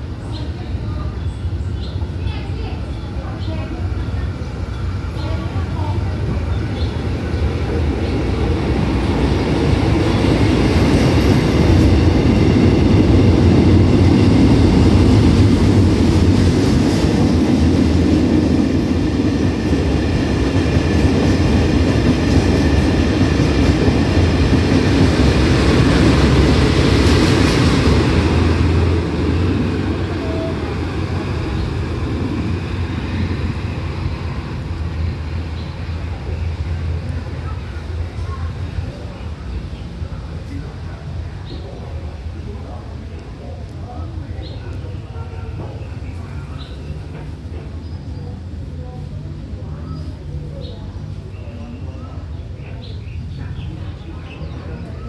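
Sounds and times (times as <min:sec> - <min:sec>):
train wheels clattering on rails: 0:03.4 - 0:35.8.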